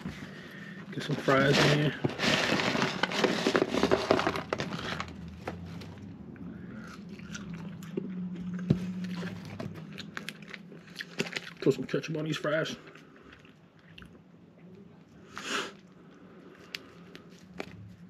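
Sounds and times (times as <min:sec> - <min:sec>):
paper packaging rustling: 0:00.0 - 0:06.2
chewing fries: 0:00.0 - 0:18.0.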